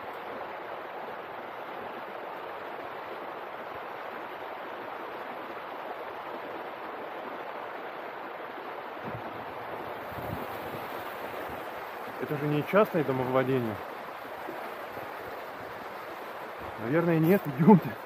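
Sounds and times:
river rushing over rocks: 0.0s - 18.0s
soft low thumps: 9.0s - 10.3s.

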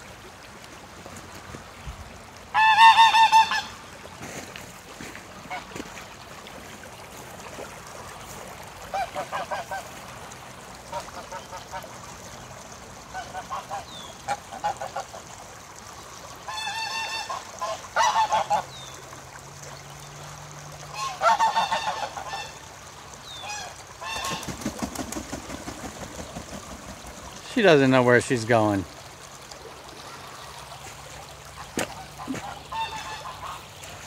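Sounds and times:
geese honking: 2.5s - 3.8s, 16.5s - 18.7s, 20.9s - 22.6s, 31.6s - 34.0s.

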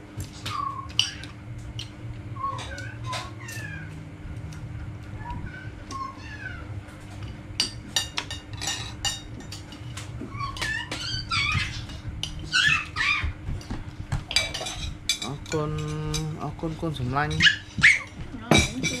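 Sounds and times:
dog whining: 0.4s - 1.4s, 2.4s - 4.0s, 5.1s - 6.9s, 10.2s - 13.4s, 17.4s - 18.2s.

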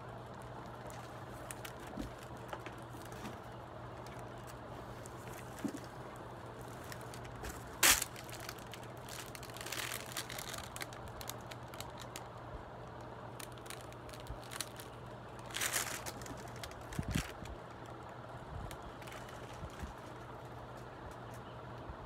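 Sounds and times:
plastic wrap crinkling: 0.0s - 21.4s
steady low hum: 0.0s - 22.0s
cardboard rustling: 0.4s - 12.2s, 13.4s - 17.6s.

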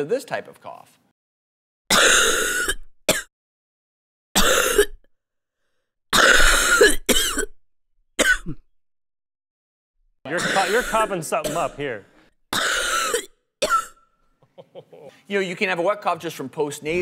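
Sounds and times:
person coughing wetly: 1.9s - 3.3s, 4.4s - 5.0s, 6.2s - 7.6s, 8.2s - 8.6s, 10.3s - 11.8s, 12.5s - 14.0s.

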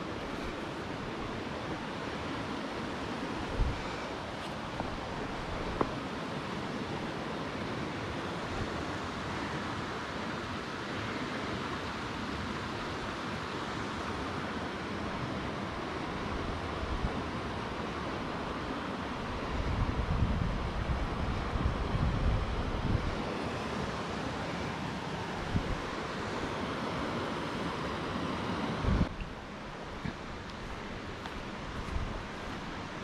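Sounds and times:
river rushing over rocks: 0.0s - 33.0s
wind on microphone: 3.3s - 6.0s, 19.1s - 24.1s, 25.4s - 26.1s, 28.6s - 33.0s.

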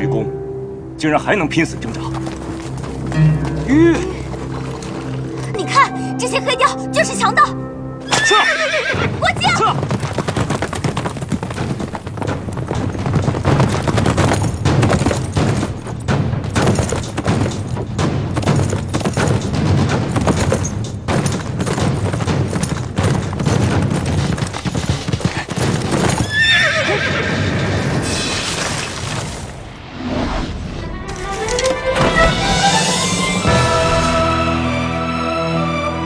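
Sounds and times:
hoofbeats galloping on turf: 1.8s - 5.8s, 8.3s - 28.1s
horse whinnying: 8.0s - 10.1s, 25.3s - 28.8s.

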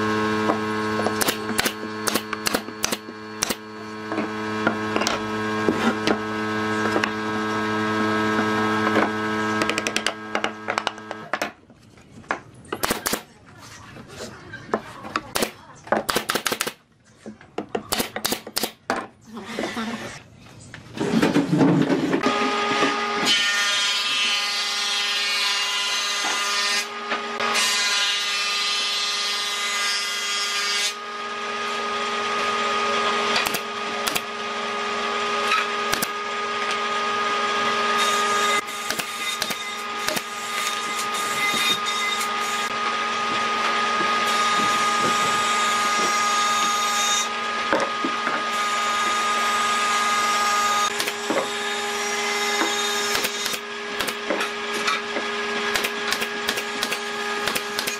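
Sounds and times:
power tool motor whine: 0.0s - 11.2s, 31.0s - 57.9s
wood cutting noise: 0.0s - 12.1s, 21.0s - 57.9s.

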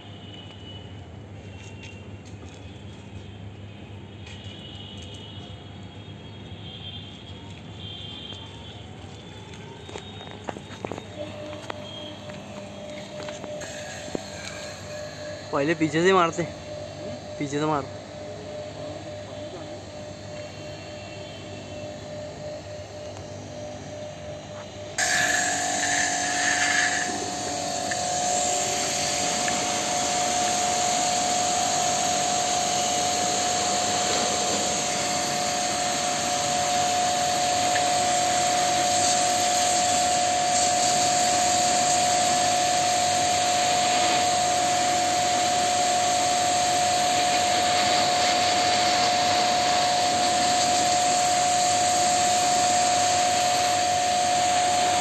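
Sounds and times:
pressure washer whine: 9.0s - 55.0s
pressure washer spray hissing: 25.0s - 55.0s.

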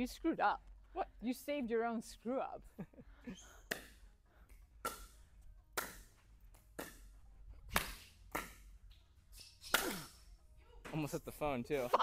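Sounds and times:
paddles hitting plastic ball: 3.7s - 9.0s.

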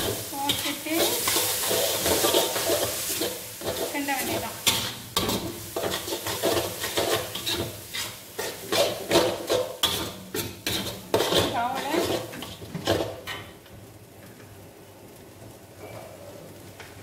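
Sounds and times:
metal spatula scraping a wok: 0.0s - 13.5s.

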